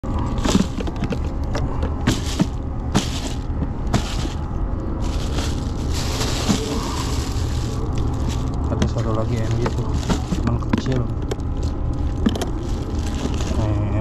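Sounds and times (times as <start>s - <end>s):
steady low rumble: 0.0s - 14.0s
hollow knocks in cooler box: 0.4s - 4.4s.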